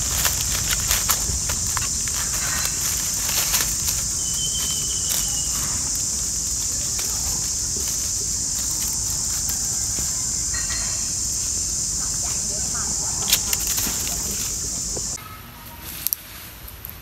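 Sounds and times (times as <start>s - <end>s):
insects buzzing: 0.0s - 15.2s
sharp crackles: 0.0s - 15.2s
thin whistle: 4.2s - 5.9s.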